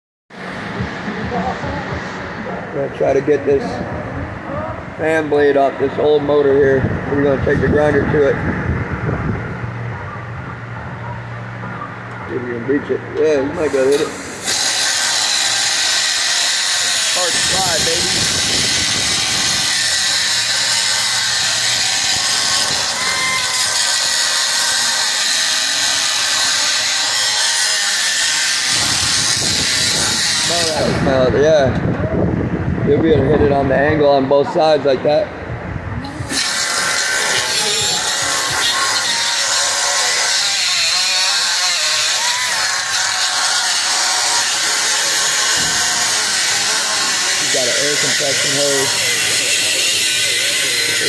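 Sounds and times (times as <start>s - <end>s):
air grinder cutting steel: 12.8s - 31.3s, 36.1s - 51.0s.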